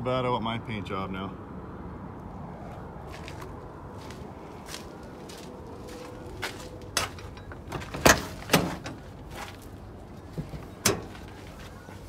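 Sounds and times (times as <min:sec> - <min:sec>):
truck door clunks and knocks: 0:07.0 - 0:09.1.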